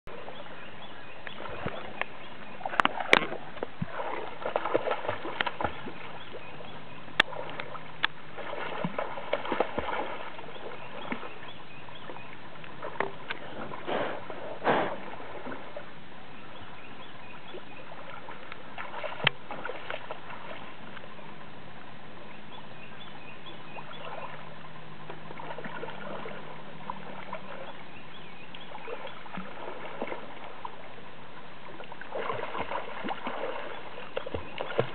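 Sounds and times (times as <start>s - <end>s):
dog splashing in water: 2.8s - 6.4s, 8.4s - 11.4s, 32.1s - 34.9s.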